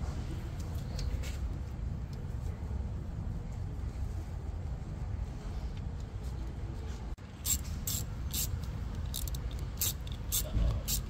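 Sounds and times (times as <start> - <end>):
ratchet wrench clicking: 7.4 - 11.0.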